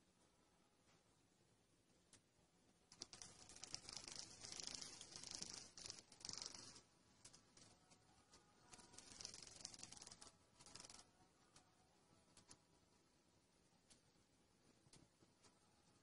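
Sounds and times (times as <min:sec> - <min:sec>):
cockroach wings buzzing on tile: 0:02.9 - 0:06.8, 0:08.7 - 0:11.1.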